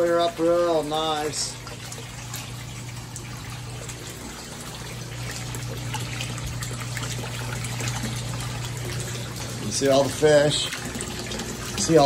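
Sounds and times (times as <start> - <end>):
water pouring into fish tank: 0.0 - 12.0.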